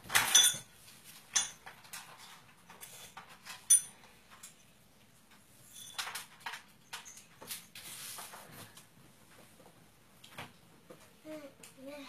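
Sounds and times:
tableware clinking on a plate: 0.2s - 0.7s, 3.6s - 4.0s.

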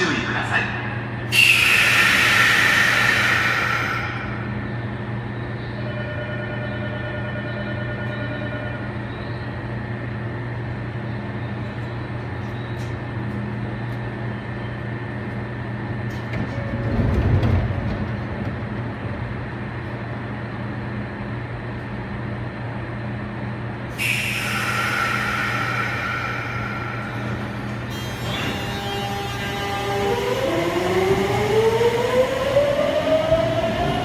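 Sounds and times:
train equipment humming: 0.0s - 34.0s
train doors closing rumble: 11.3s - 22.0s, 23.2s - 34.0s.

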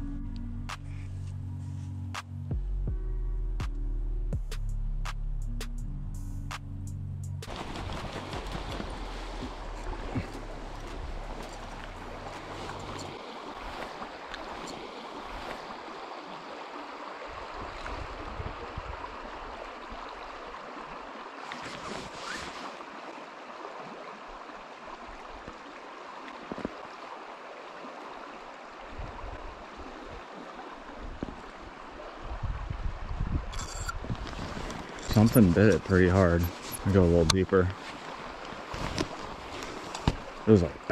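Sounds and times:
river rushing over gravel: 7.5s - 23.3s, 33.6s - 40.9s
wind buffeting microphone: 32.2s - 36.0s.

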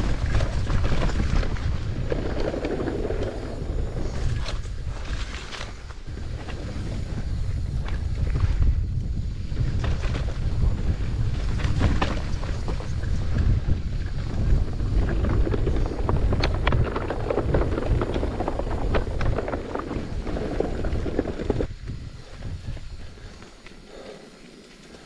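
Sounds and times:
wind buffeting microphone: 0.0s - 24.3s
bike rattling clicks and knocks: 11.2s - 21.7s.

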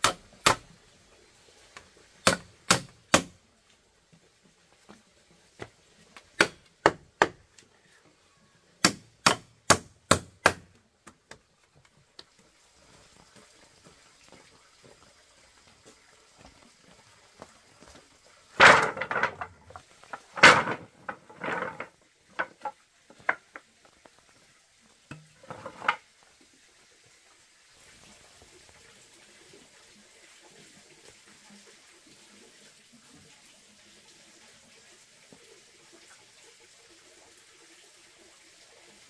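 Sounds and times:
sharp strikes on wood: 0.0s - 0.6s, 2.2s - 3.4s, 6.4s - 7.4s, 8.8s - 10.8s
clattering rustling bursts: 18.6s - 22.7s.

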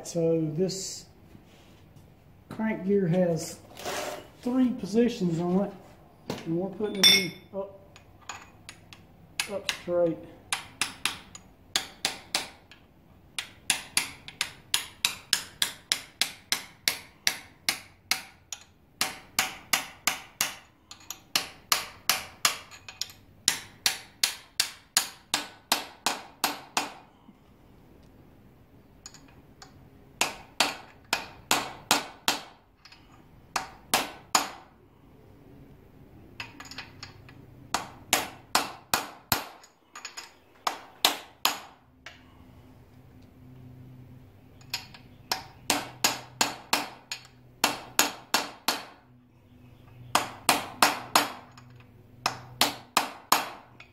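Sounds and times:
hammer striking metal: 6.9s - 7.5s.

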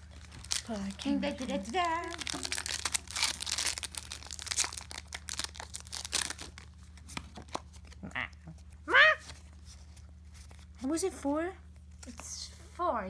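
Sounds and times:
foil pack tearing and crinkling: 0.0s - 6.7s
short voiced exclamation: 8.0s - 9.4s.

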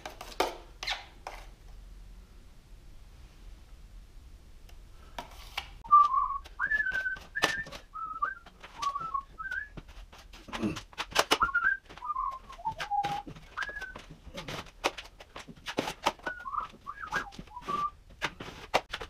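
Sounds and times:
person whistling: 5.9s - 9.8s, 11.4s - 14.1s, 16.2s - 18.0s
drywall knife scraping and tapping: 12.7s - 16.5s.

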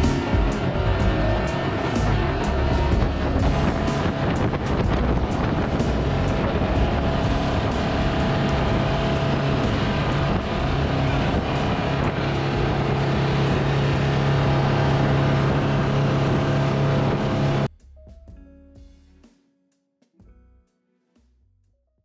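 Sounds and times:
motorboat engine drone: 0.0s - 17.7s
rushing water: 0.0s - 17.7s
wind on microphone: 0.0s - 17.7s.

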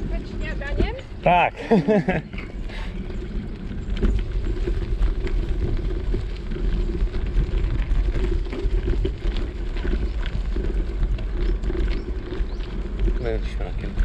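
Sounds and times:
wheels crunching on gravel: 0.0s - 14.0s
wind rumble on microphone: 0.0s - 14.0s.

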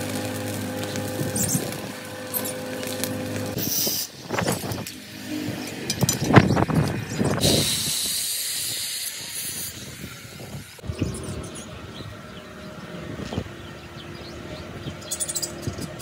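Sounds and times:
angle grinder cutting steel: 0.0s - 10.8s
steel rods clanking: 3.9s - 9.7s
high hiss: 7.4s - 10.8s.

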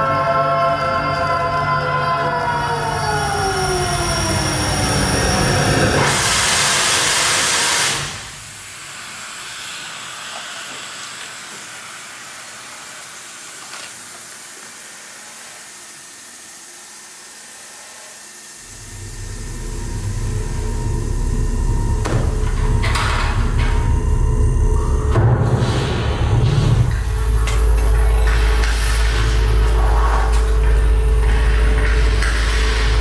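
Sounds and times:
low hum: 18.6s - 33.0s
low rumble: 18.7s - 33.0s.

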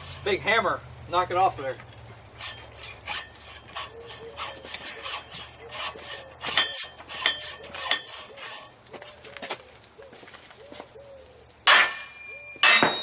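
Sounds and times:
hacksaw cutting metal: 2.4s - 9.2s, 11.7s - 13.0s
faint metallic ring: 11.7s - 13.0s.

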